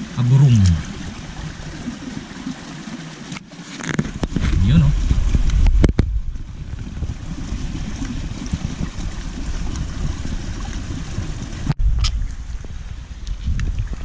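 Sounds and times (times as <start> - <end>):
creek water: 0.0 - 14.0
wind rumble on microphone: 3.9 - 14.0.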